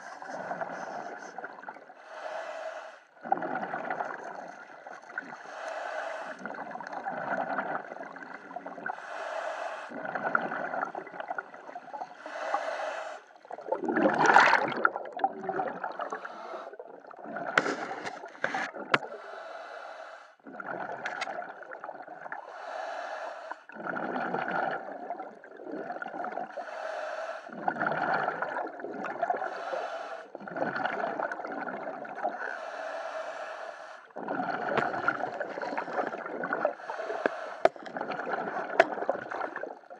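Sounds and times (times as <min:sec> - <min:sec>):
exhaled bubbles gurgling: 0:00.0 - 0:02.1, 0:03.1 - 0:09.0, 0:09.9 - 0:19.4, 0:20.4 - 0:22.8, 0:23.7 - 0:26.8, 0:27.5 - 0:32.8, 0:34.1 - 0:39.9
regulator inhale hiss: 0:02.0 - 0:03.1, 0:05.5 - 0:06.4, 0:09.0 - 0:09.9, 0:12.2 - 0:13.3, 0:19.1 - 0:20.4, 0:22.5 - 0:23.6, 0:29.5 - 0:30.3, 0:32.6 - 0:34.1, 0:36.8 - 0:37.8.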